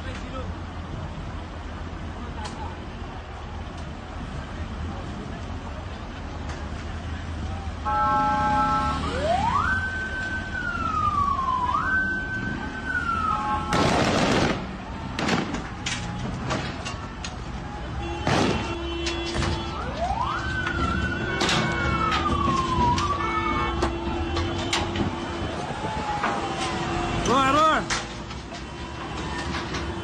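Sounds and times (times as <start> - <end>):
street and crowd noise: 0.0 - 30.0
vehicle siren wailing: 7.8 - 14.0, 19.2 - 27.9
sharp bangs: 13.6 - 17.1, 18.2 - 19.8.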